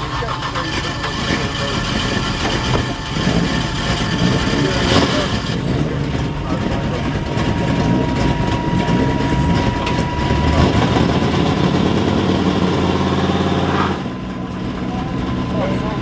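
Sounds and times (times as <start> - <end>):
car engines running: 0.0 - 16.0
engine holding steady note: 0.0 - 16.0
thin steady whine: 0.0 - 16.0.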